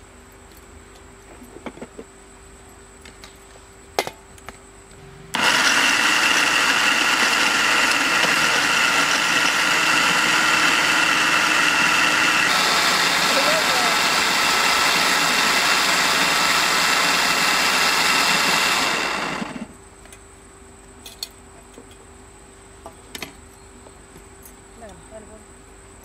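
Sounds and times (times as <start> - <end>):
mixer grinder whining: 5.3 - 19.8.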